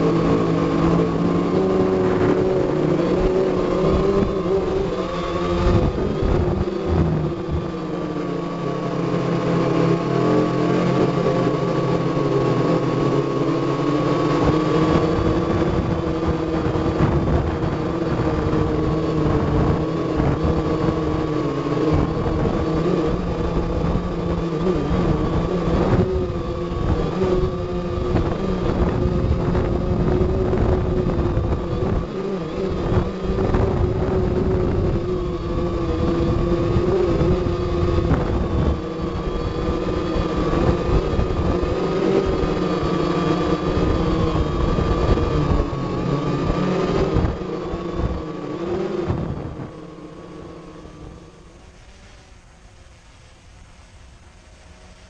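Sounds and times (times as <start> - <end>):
low rough rumble: 0.0 - 7.8
drone motors whining: 0.0 - 55.0.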